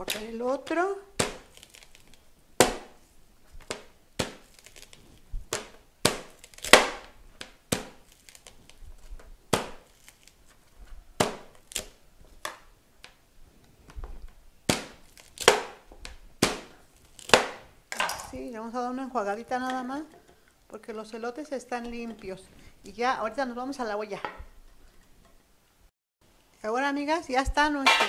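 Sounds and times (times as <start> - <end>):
knife chopping corn on board: 1.2 - 1.7, 2.6 - 3.0, 7.7 - 8.1.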